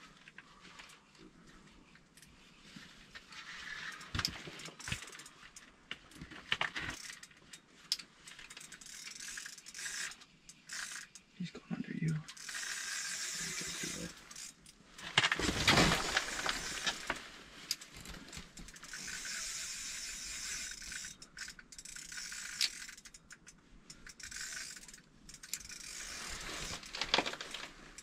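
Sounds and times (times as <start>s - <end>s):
fishing reel ratcheting whir: 6.8s - 7.4s, 8.4s - 11.2s, 12.3s - 14.8s, 18.7s - 27.0s.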